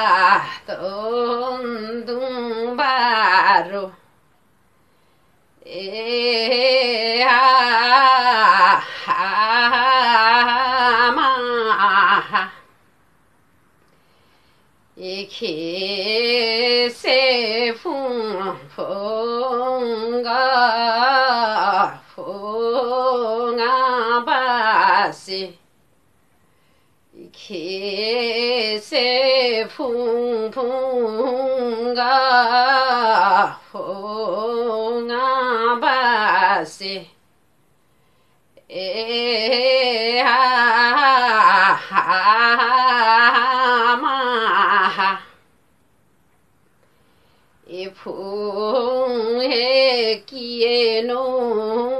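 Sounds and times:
woman singing unaccompanied: 0.0s - 4.3s, 5.5s - 12.8s, 14.9s - 25.7s, 27.1s - 37.3s, 38.5s - 45.6s, 47.6s - 51.9s
woman breathing: 4.7s - 5.6s, 13.8s - 14.9s, 26.3s - 27.1s, 37.8s - 38.6s, 46.8s - 47.7s.

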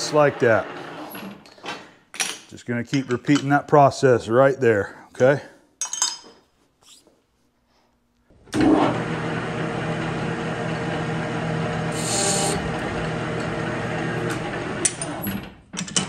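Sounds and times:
metal lathe humming: 9.8s - 15.2s.

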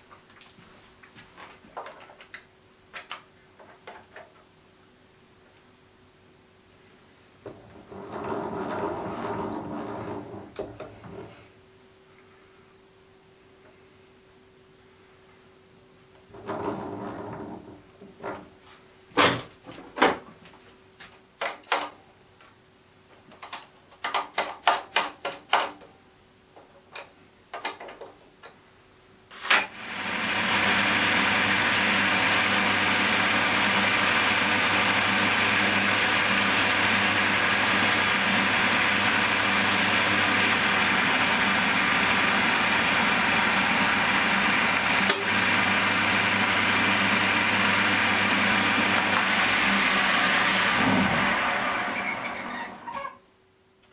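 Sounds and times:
drilling machine motor boring metal: 7.9s - 10.9s, 16.3s - 17.7s, 29.4s - 52.9s.

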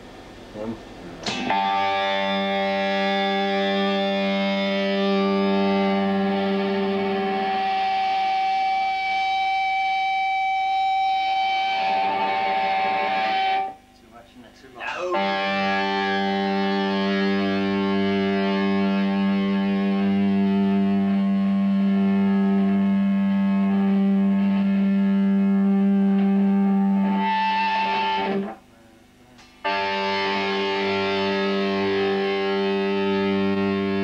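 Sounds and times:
electric guitar feedback note: 1.2s - 13.9s, 14.8s - 28.7s, 29.6s - 34.0s
higher feedback tone: 1.5s - 13.9s, 14.8s - 28.5s.

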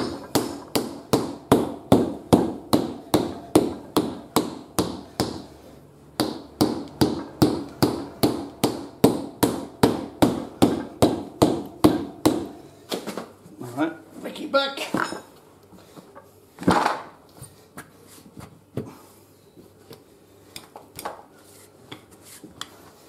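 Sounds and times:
rubber hammer knocking on tyre: 0.0s - 5.4s, 6.2s - 12.6s.

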